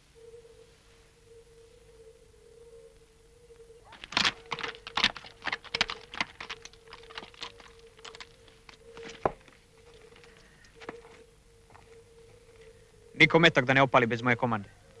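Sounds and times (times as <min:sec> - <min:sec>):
hooves clattering on stony ground: 0:03.9 - 0:12.7.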